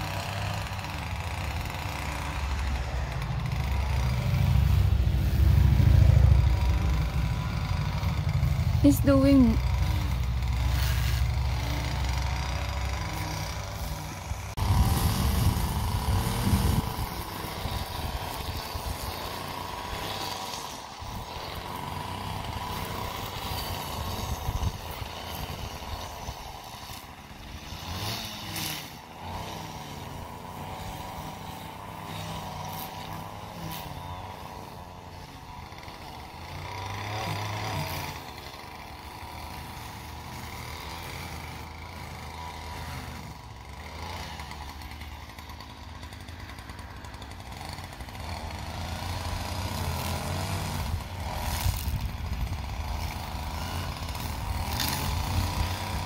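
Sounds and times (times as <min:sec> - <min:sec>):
small petrol engine running: 0:00.0 - 0:56.0
deeper engine note: 0:02.4 - 0:10.5.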